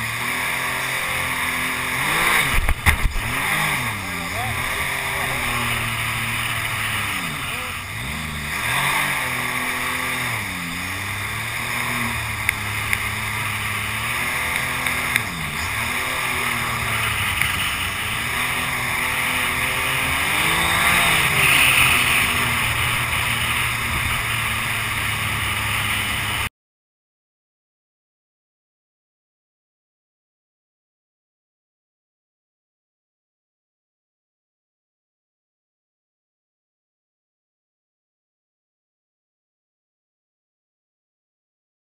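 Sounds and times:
boat engine drone: 0.0s - 26.5s
sharp ticks: 17.2s - 17.7s.

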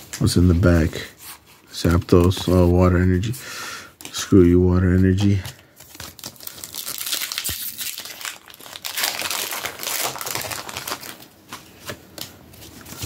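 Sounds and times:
foil wrapper crinkling: 5.1s - 11.5s.

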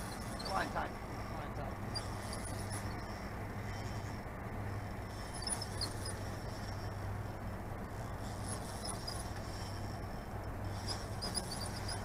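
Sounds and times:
short high squeaks: 0.0s - 0.8s, 1.8s - 4.1s, 5.1s - 7.0s, 7.9s - 12.0s
spinning reel cranking: 0.0s - 0.9s, 1.8s - 4.1s, 4.8s - 7.0s, 7.8s - 12.0s
low hum: 0.0s - 12.0s.

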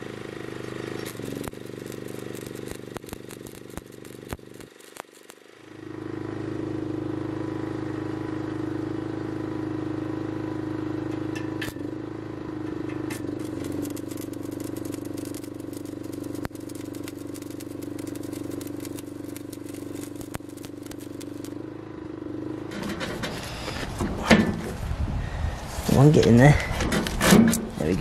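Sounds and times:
welding arc crackling: 0.0s - 5.9s, 12.7s - 21.8s, 22.6s - 24.0s
electrical hum: 0.0s - 6.2s, 12.4s - 22.0s, 22.6s - 28.0s.

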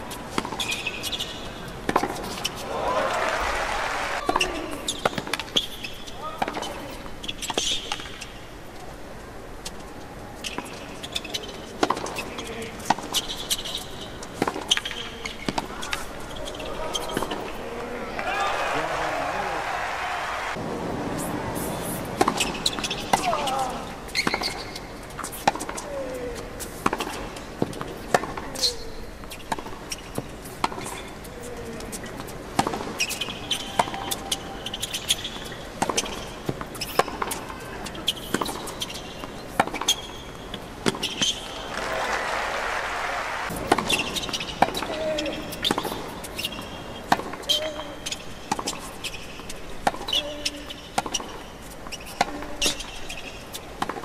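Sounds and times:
shoes squeaking on court: 0.0s - 2.7s, 4.2s - 20.6s, 21.6s - 42.2s, 43.4s - 54.0s
racket hitting tennis ball: 0.2s - 1.2s, 1.8s - 2.7s, 22.0s - 25.8s, 26.7s - 28.6s, 32.2s - 40.1s, 40.8s - 42.1s, 43.4s - 47.7s, 49.8s - 53.0s, 53.8s - 54.0s
tennis ball bouncing: 0.3s - 2.6s, 10.4s - 13.8s, 22.0s - 25.8s, 26.7s - 28.6s, 29.2s - 31.0s, 32.0s - 41.9s, 43.5s - 47.8s, 48.5s - 54.0s
racquet striking tennis ball: 1.8s - 2.4s, 22.0s - 23.5s, 32.6s - 37.5s, 40.8s - 41.9s, 43.4s - 45.0s.

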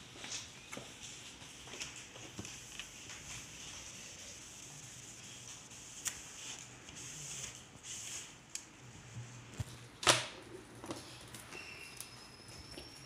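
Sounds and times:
cloth rubbing on film: 0.9s - 8.4s.

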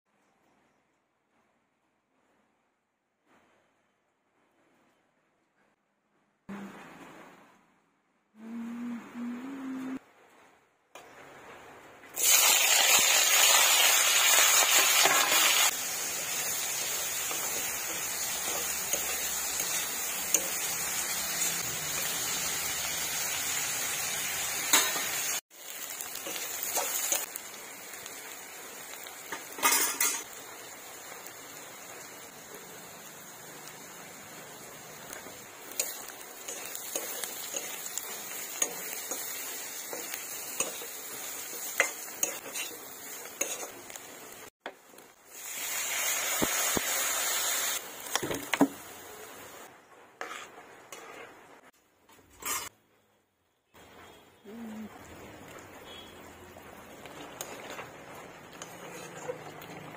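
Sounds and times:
onions sizzling in hot oil: 12.1s - 51.7s, 53.8s - 59.9s
spatula scraping and clinking pan: 29.3s - 30.3s, 35.8s - 44.0s, 52.2s - 52.7s.

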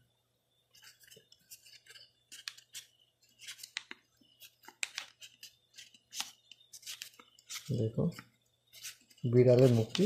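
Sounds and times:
paper crinkling: 0.8s - 10.0s.

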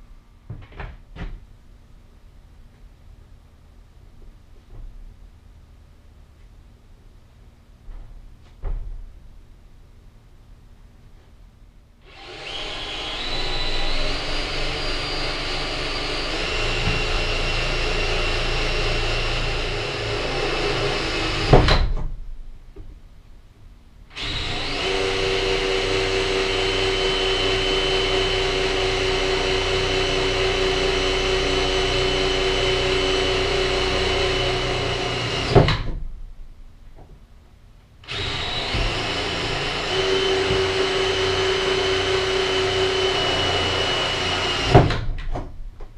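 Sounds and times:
cordless drill boring into wall: 12.0s - 21.8s, 24.1s - 35.9s, 38.0s - 45.1s.

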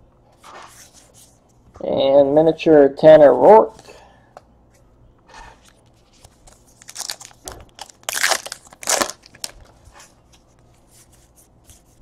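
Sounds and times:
card pack crinkling: 6.2s - 9.8s.

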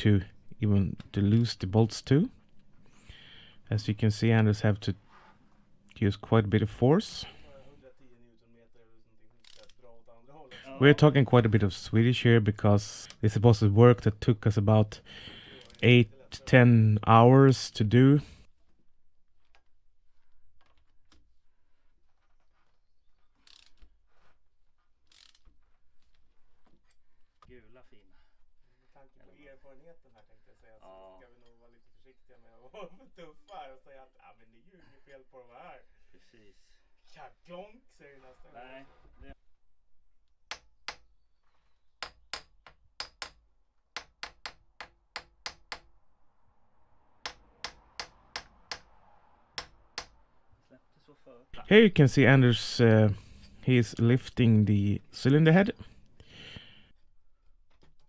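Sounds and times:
hammer striking metal: 44.0s - 45.9s, 47.2s - 49.0s, 49.6s - 50.2s.

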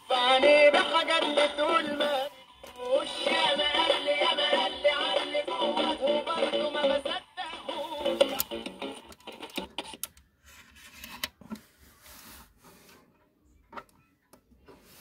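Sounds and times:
music from small speaker: 0.0s - 10.0s.

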